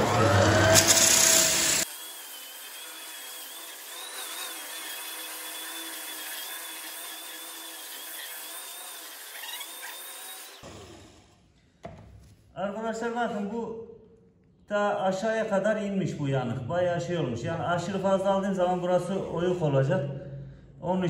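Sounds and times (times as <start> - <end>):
floor sander grinding wood: 0.0 - 11.4.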